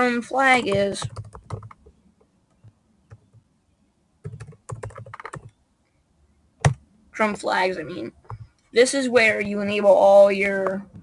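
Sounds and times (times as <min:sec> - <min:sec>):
laptop keyboard typing: 0:00.4 - 0:03.5, 0:04.2 - 0:05.6, 0:06.6 - 0:06.8, 0:08.2 - 0:08.6.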